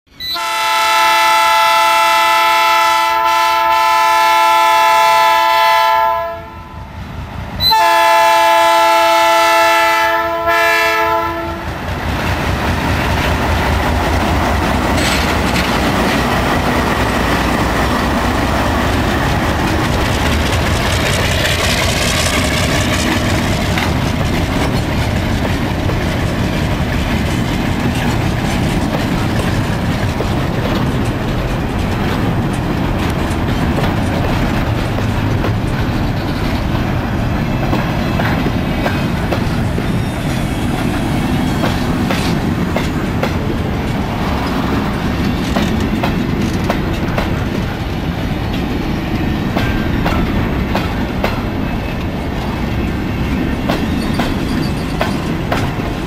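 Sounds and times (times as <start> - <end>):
train rumbling over rails: 0.1 - 56.0
locomotive horn blasts: 0.2 - 6.8, 7.6 - 11.8.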